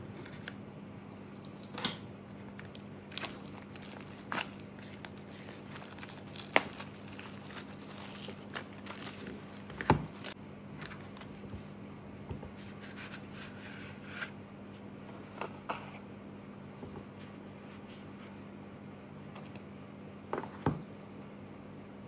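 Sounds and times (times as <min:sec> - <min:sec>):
plastic wrap crinkling: 0:02.3 - 0:11.6.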